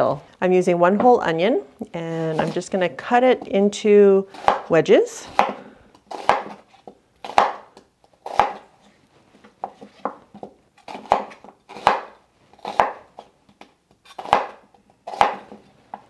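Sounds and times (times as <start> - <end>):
knife cutting onion on board: 4.3 - 8.6, 9.6 - 13.3, 14.1 - 16.0.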